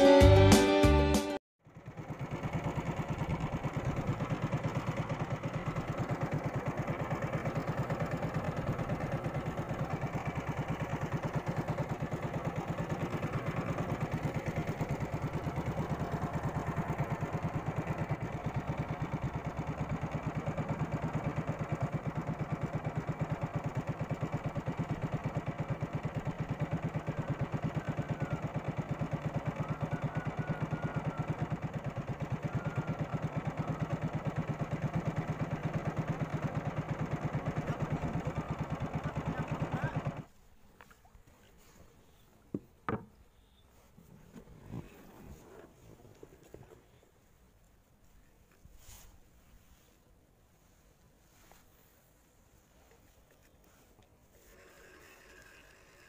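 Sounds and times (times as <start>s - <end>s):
boat engine throbbing: 1.7s - 40.3s.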